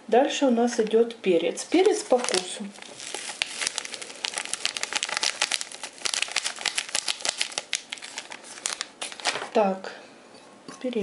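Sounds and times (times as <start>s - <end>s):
foil packet crinkling and rattling: 1.7s - 9.6s.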